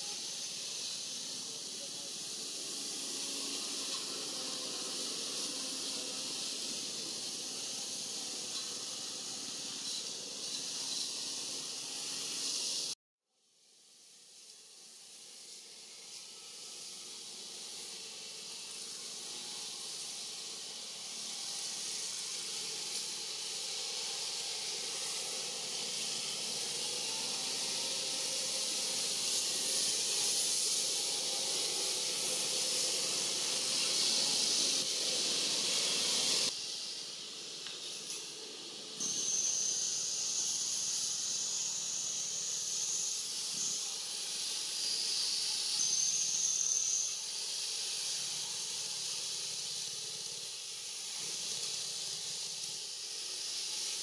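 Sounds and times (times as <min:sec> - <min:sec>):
high-pitched hiss: 0:00.0 - 0:13.0, 0:13.6 - 0:54.0
thin high tone: 0:39.0 - 0:47.3.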